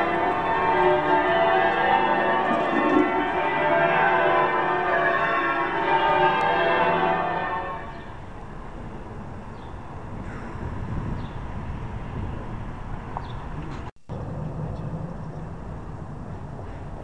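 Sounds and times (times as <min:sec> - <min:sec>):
church bells ringing: 0:00.0 - 0:10.2
low rumble: 0:08.0 - 0:17.0.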